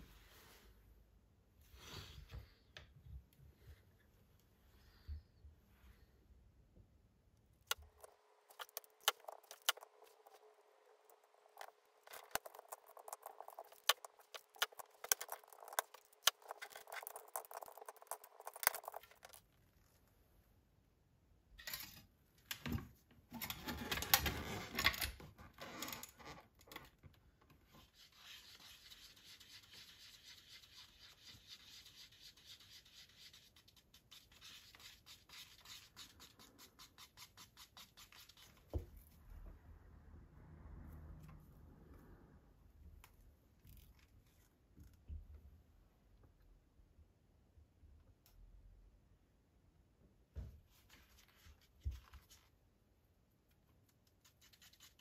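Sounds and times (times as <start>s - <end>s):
wooden clicks and taps of pencils: 7.7s - 10.4s, 11.6s - 19.4s
stick scraping in plastic cup: 7.7s - 19.4s.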